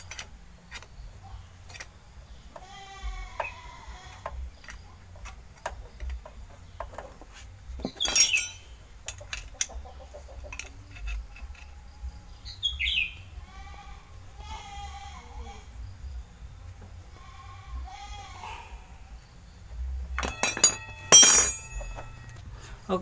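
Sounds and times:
metal tools clinking: 0:07.8 - 0:09.8, 0:20.2 - 0:22.5.

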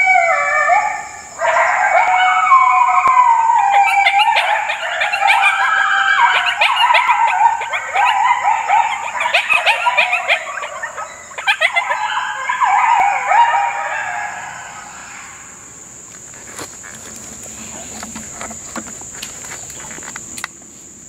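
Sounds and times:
coyotes yipping and howling: 0:00.0 - 0:20.4.

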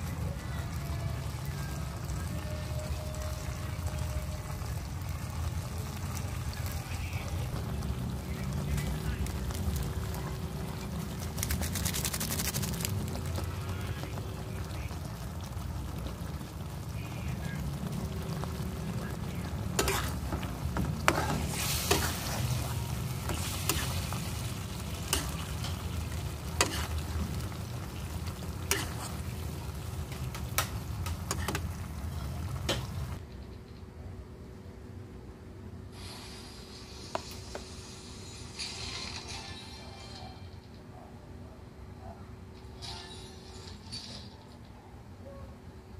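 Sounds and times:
sauce bubbling and sizzling: 0:00.0 - 0:33.2
spatula scraping a pan: 0:19.7 - 0:27.2, 0:28.6 - 0:29.4.

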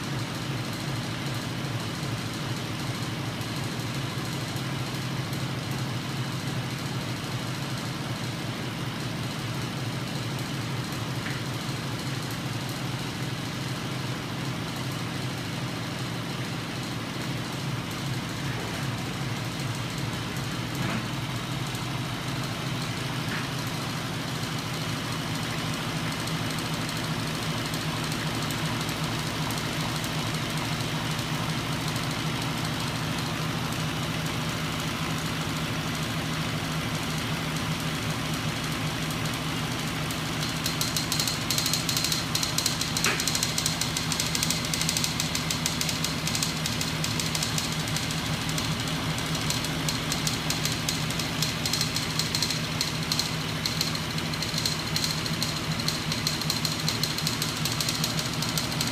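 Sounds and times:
engine rig mechanical hum: 0:16.8 - 0:58.9
sharp rapid rattle: 0:38.6 - 0:58.9
fast clicking: 0:40.4 - 0:58.9.

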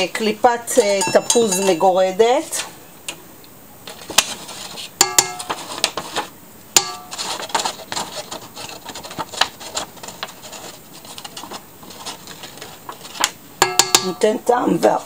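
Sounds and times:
sharp knocks with brief ring: 0:01.0 - 0:01.9.

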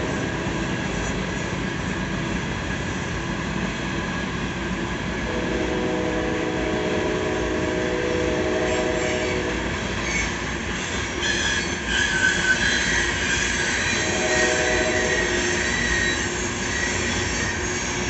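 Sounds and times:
squealing train wheels: 0:00.0 - 0:03.1, 0:07.4 - 0:18.0
train wheels rolling on rails: 0:00.0 - 0:18.0.

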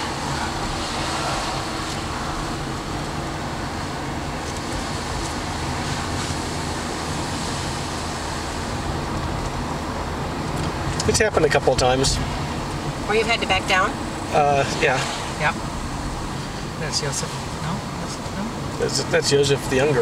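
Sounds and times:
tyre noise on asphalt: 0:00.0 - 0:16.9
car engine running: 0:00.0 - 0:20.0.

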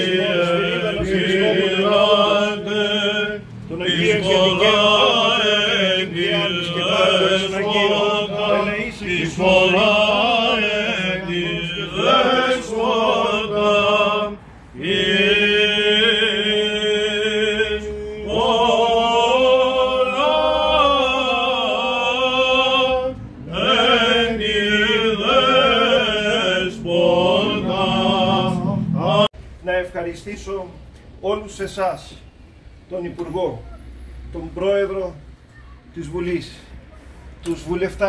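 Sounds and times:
men chanting a hymn: 0:00.0 - 0:29.4.

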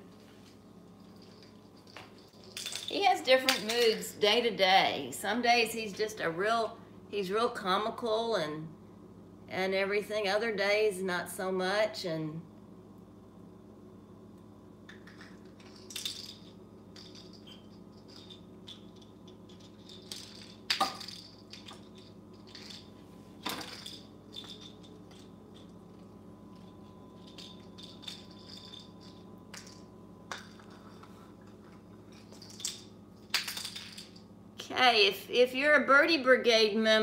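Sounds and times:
toy clicking and rattling: 0:01.2 - 0:04.2, 0:15.0 - 0:30.8, 0:32.1 - 0:34.2.

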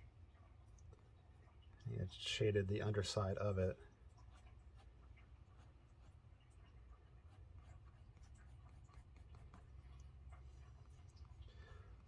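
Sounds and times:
low steady hum: 0:00.0 - 0:12.0
pencil scratching on paper: 0:04.3 - 0:06.2, 0:07.2 - 0:09.9.

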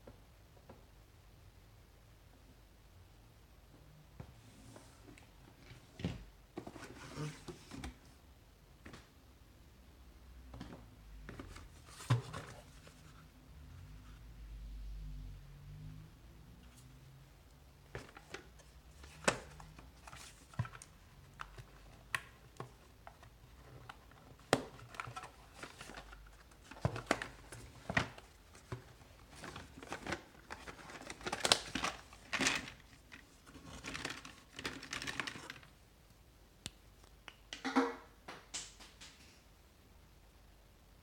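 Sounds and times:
cardboard rustling and scraping: 0:05.7 - 0:08.1, 0:11.2 - 0:13.3, 0:17.9 - 0:35.6.

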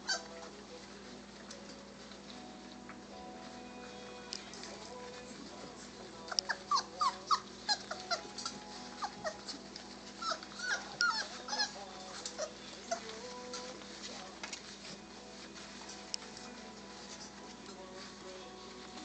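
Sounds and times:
puppies whimpering and squealing: 0:00.0 - 0:01.4, 0:05.8 - 0:18.7.

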